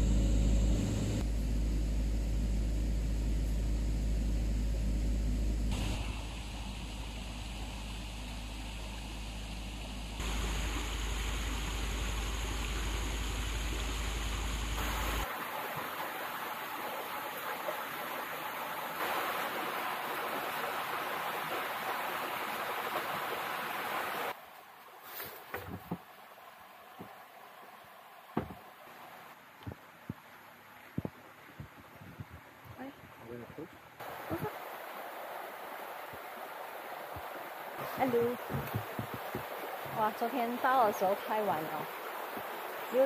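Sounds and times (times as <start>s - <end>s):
low rumble: 0.0s - 15.2s
hiss: 5.7s - 24.4s
stream flowing: 5.7s - 43.0s.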